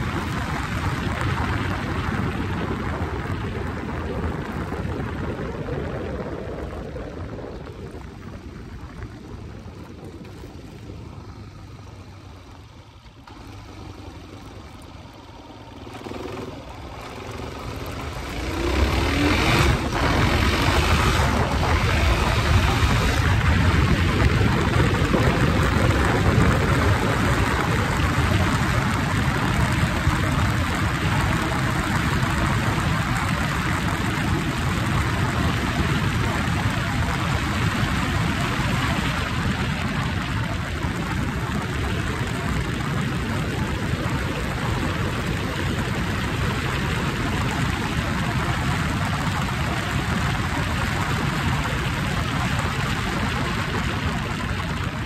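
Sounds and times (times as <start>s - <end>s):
motorcycle engine: 0.0s - 55.0s
wind rushing: 17.1s - 27.5s.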